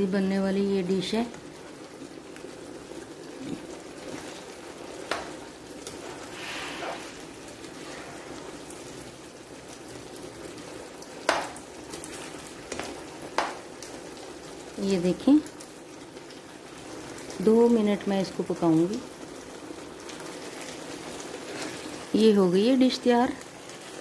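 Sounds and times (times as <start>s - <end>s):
gravy simmering and bubbling: 0.0s - 24.0s
spatula stirring in pan: 2.4s - 9.1s, 20.0s - 22.1s
spatula tapping a pan: 11.2s - 11.6s, 12.7s - 13.6s.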